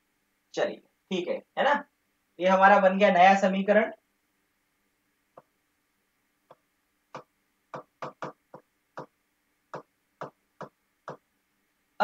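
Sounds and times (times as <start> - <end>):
marker pen clicking on whiteboard: 6.5 - 11.3.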